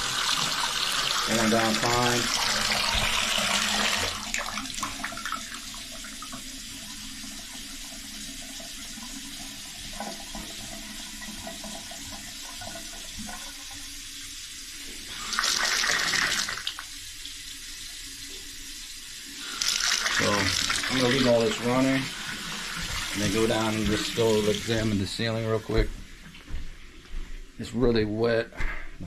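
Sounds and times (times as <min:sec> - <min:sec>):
faucet water running into tub: 0:00.0 - 0:25.8.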